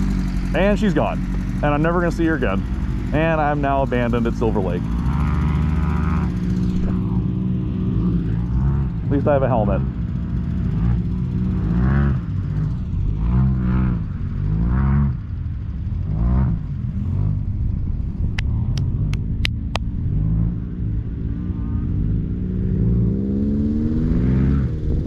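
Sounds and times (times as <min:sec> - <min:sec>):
engine revving unevenly: 0:00.0 - 0:25.0
sharp clicks: 0:18.3 - 0:19.9.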